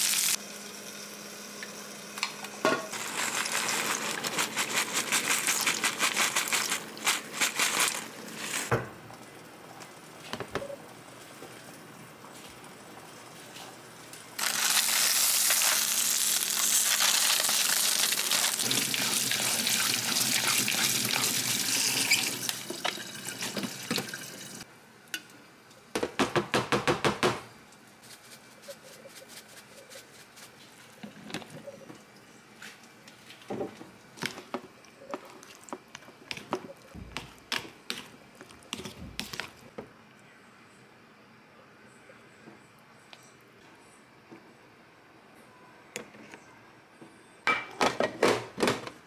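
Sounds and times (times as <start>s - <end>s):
loud steady hiss: 0.0s - 0.5s.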